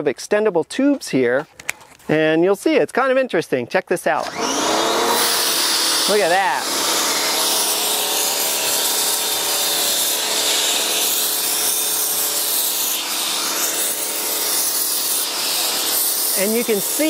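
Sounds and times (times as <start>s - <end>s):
pressure washer humming: 4.3s - 17.0s.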